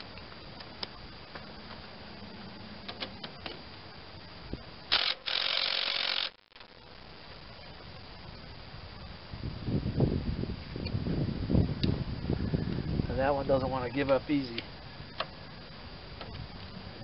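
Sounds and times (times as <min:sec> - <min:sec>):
cordless power tool spinning: 0:04.9 - 0:06.4.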